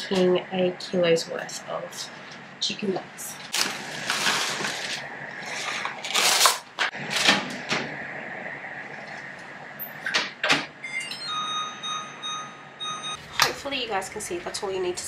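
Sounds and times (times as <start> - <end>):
microwave running whine: 0.0 - 15.0
cling wrap crinkling: 3.4 - 7.3
keypad beeps: 10.8 - 13.2.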